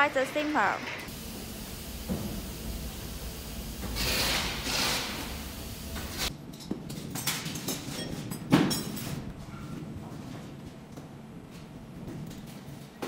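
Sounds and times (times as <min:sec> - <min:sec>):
air hissing bursts: 0:01.1 - 0:06.3.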